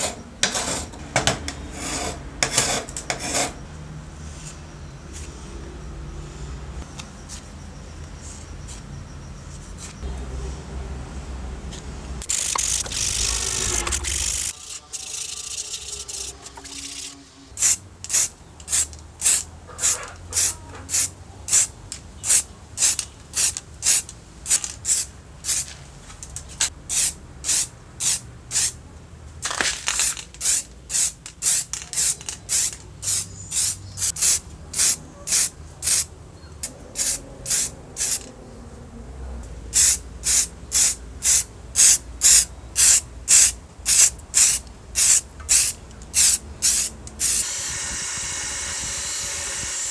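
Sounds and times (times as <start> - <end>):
spray-paint can hissing bursts: 12.2 - 25.7, 26.9 - 28.8, 30.0 - 36.1, 37.0 - 38.3, 39.7 - 48.4.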